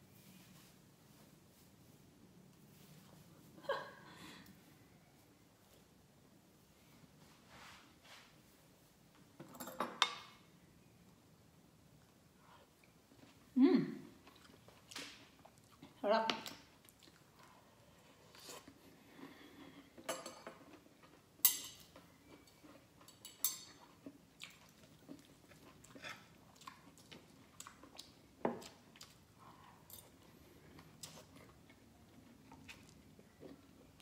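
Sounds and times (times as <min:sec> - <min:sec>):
cutlery clinking on frying pan: 0:09.4 - 0:10.4, 0:20.1 - 0:20.6, 0:21.4 - 0:21.9, 0:23.1 - 0:23.8
chewing vegetables: 0:12.1 - 0:34.0.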